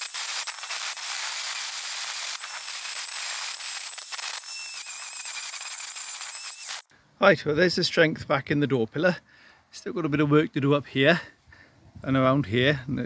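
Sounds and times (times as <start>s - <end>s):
angle grinder grinding metal: 0.0s - 6.9s.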